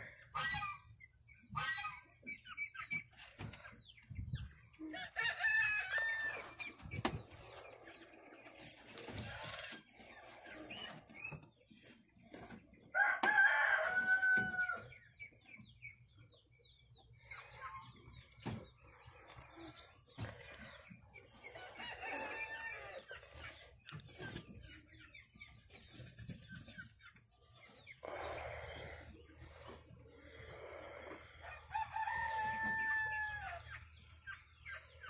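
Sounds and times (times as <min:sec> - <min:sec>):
rooster crowing: 0:13.0 - 0:14.8, 0:31.4 - 0:33.6.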